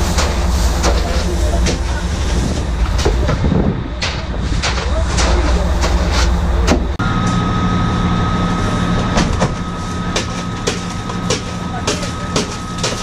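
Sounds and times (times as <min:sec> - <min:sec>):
machinery drone: 0:00.0 - 0:13.0
thin high whine: 0:05.0 - 0:13.0.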